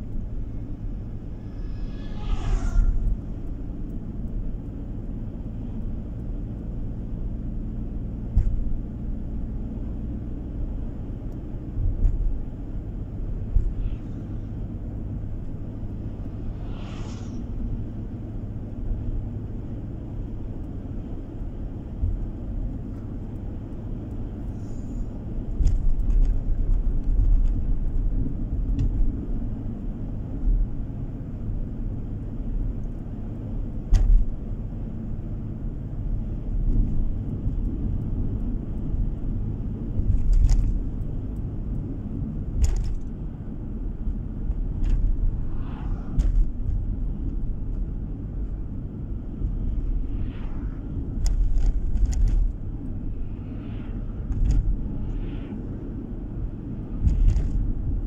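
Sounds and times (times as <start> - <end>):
car road and engine rumble: 0.0 - 58.0
rushing whoosh: 0.8 - 3.8, 15.2 - 18.5, 45.1 - 47.7, 49.2 - 52.0, 52.9 - 57.3.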